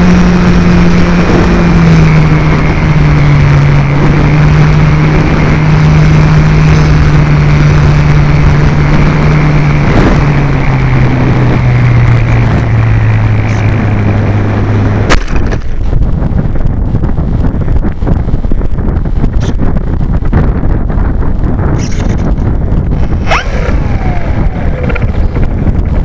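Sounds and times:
electric motor and propeller: 0.0s - 26.0s
air rushing: 21.7s - 26.0s.

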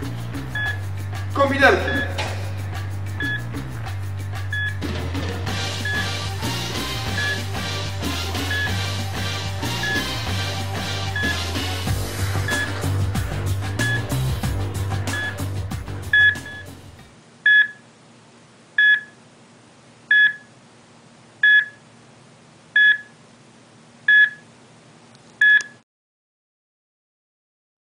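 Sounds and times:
background music: 0.0s - 17.1s
electronic beep: 0.6s - 0.8s, 1.8s - 2.2s, 3.2s - 3.5s, 4.5s - 4.8s, 5.8s - 6.2s, 7.1s - 7.5s, 8.4s - 8.8s, 9.7s - 10.2s, 11.1s - 11.5s, 12.4s - 12.8s, 13.8s - 14.2s, 15.1s - 15.4s, 16.1s - 16.7s, 17.5s - 17.8s, 18.8s - 19.2s, 20.1s - 20.5s, 21.4s - 21.8s, 22.8s - 23.1s, 24.1s - 24.4s
faint steady hum: 15.1s - 25.8s.

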